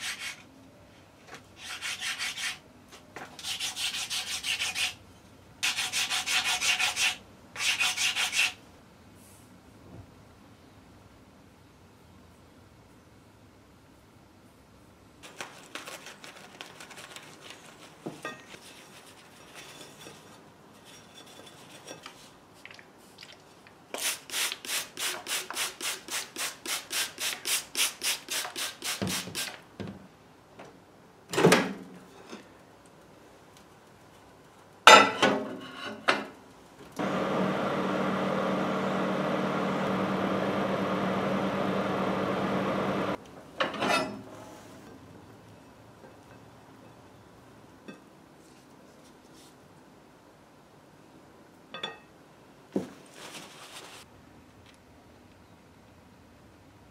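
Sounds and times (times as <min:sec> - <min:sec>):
paper towel rustling: 0:15.2 - 0:19.4, 0:52.9 - 0:54.1
microwave oven humming: 0:37.0 - 0:43.2.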